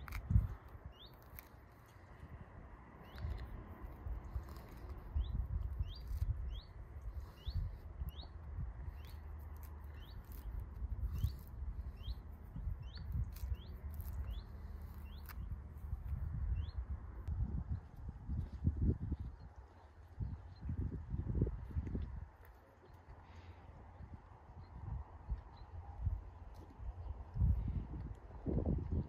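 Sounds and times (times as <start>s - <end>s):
fruit peel tearing: 0.0s - 16.5s
small bird chirping: 0.0s - 16.9s.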